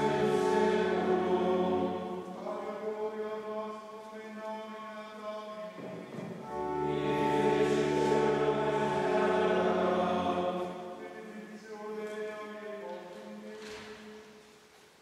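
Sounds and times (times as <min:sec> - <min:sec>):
plainchant singing: 0:00.0 - 0:14.3
low sustained note: 0:06.4 - 0:11.0.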